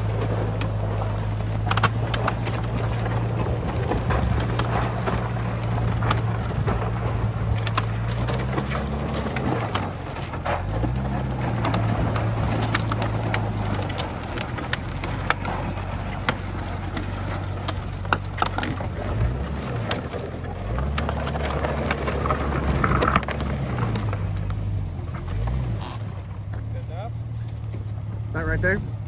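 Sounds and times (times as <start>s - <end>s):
sharp clicks and cracks: 0.0s - 28.5s
car engine running at low speed: 0.0s - 29.0s.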